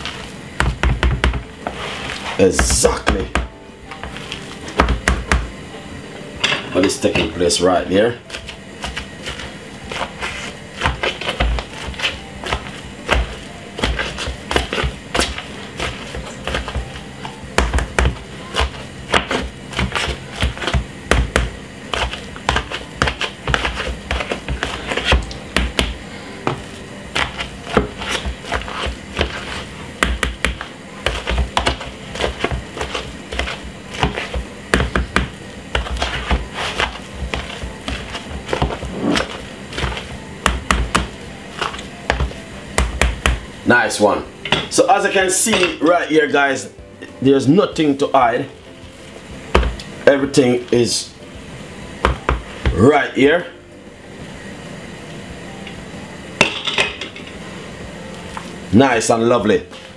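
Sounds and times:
potato masher pounding potatoes: 0:00.0 - 0:05.6, 0:06.8 - 0:48.5, 0:49.5 - 0:51.1, 0:52.0 - 0:53.4
background music: 0:00.0 - 0:59.9.

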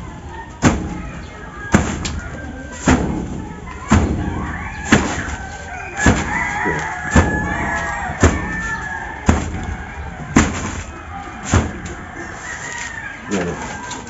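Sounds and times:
dull thuds of packing a sack: 0:00.6 - 0:12.7.

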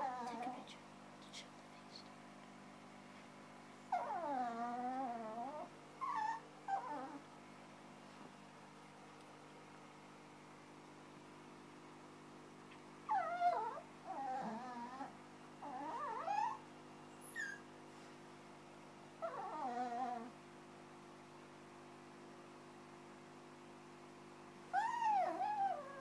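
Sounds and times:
small dog whining: 0:00.0 - 0:00.6, 0:03.9 - 0:07.3, 0:13.1 - 0:17.7, 0:19.2 - 0:20.4, 0:24.7 - 0:26.0.

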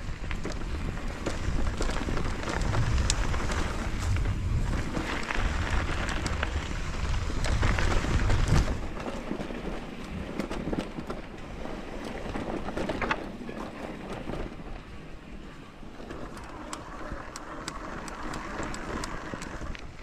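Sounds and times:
bike rattles and clicks: 0:00.0 - 0:20.0
bike tyres rolling on dirt: 0:00.0 - 0:20.0
wind rumbling on microphone: 0:00.0 - 0:20.0.

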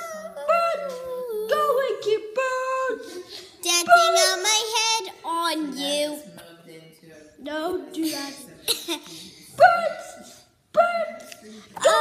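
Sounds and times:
child singing: 0:03.6 - 0:06.3.

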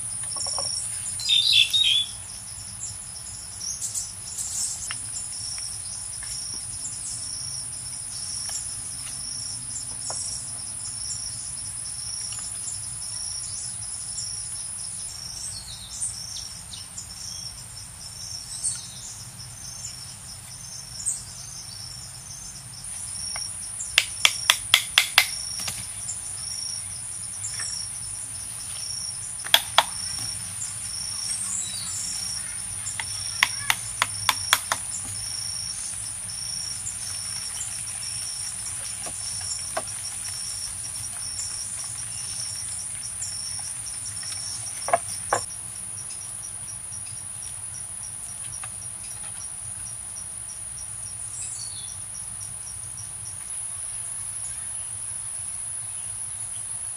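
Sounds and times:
high insect drone: 0:00.0 - 0:56.9
knife knocking on bamboo: 0:29.4 - 0:30.3, 0:33.0 - 0:35.2, 0:44.8 - 0:45.5.

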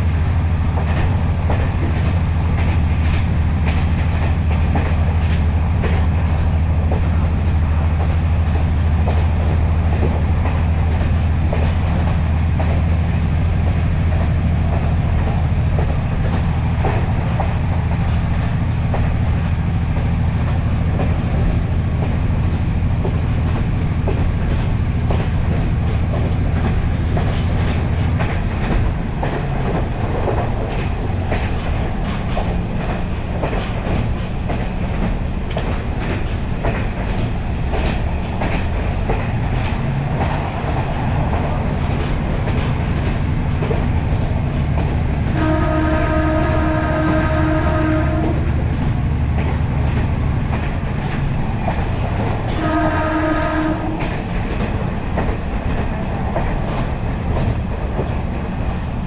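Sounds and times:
train wheels clattering on rails: 0:00.0 - 0:59.0
train horn blast: 0:45.3 - 0:48.6, 0:52.5 - 0:54.2.

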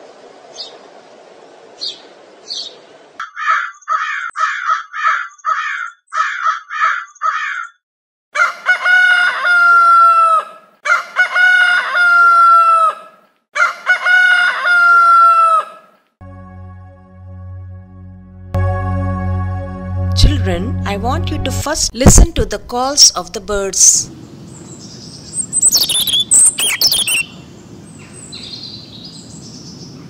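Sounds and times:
small bird chirps: 0:01.8 - 0:04.0, 0:24.5 - 0:30.0
harsh bird calls: 0:01.8 - 0:07.8, 0:24.4 - 0:30.0
rooster crowing: 0:08.4 - 0:16.0.

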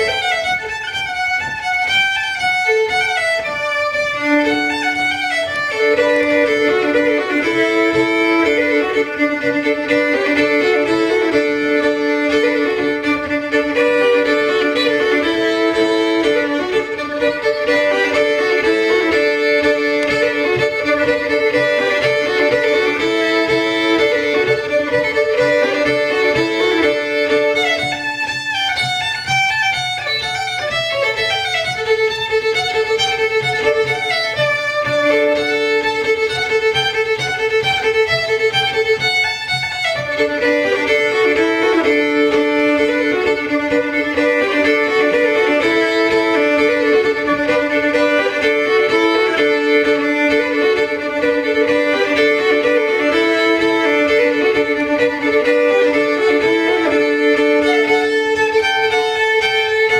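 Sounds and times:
fiddle tune: 0:00.0 - 0:59.9.

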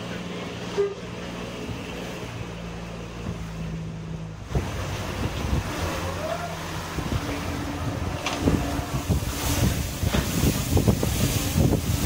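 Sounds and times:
bow wave splashing: 0:00.0 - 0:12.0
diesel engine droning: 0:00.0 - 0:12.0
wind on microphone: 0:04.4 - 0:12.0.

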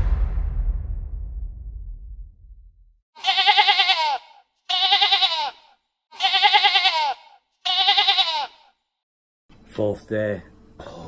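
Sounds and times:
low rumble: 0:00.0 - 0:03.0
animal bleating: 0:03.2 - 0:08.8.

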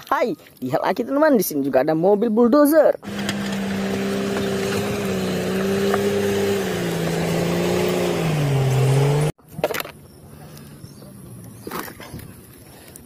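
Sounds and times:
bulldozer engine running hard: 0:03.0 - 0:09.3
blade pushing concrete slabs: 0:03.0 - 0:09.8.

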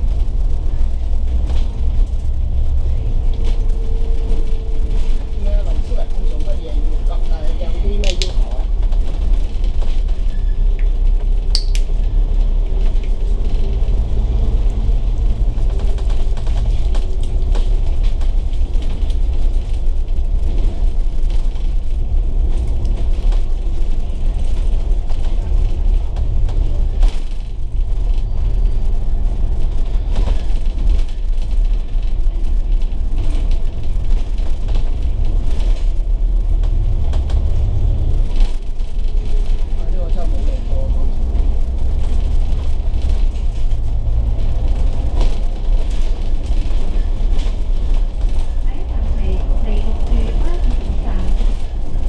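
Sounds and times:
bus engine droning: 0:00.0 - 0:52.0.

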